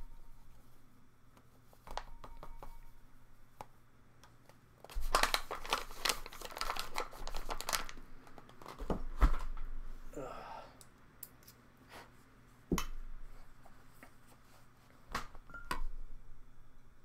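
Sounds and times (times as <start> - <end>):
packaging bag crinkling: 4.9 - 8.8.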